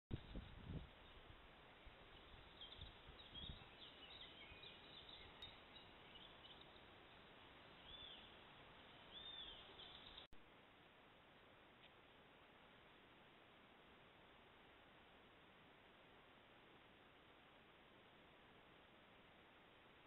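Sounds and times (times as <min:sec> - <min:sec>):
steady hiss: 0:00.2 - 0:20.0
birds chirping: 0:00.3 - 0:10.4
bird calls: 0:02.1 - 0:07.2, 0:07.8 - 0:10.3.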